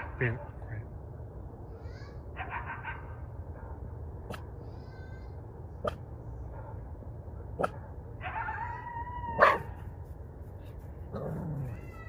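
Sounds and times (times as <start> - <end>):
dog barking: 2.4 - 3.8, 5.8 - 6.9, 7.6 - 8.5, 9.4 - 9.8
dog yelp: 7.6 - 9.8.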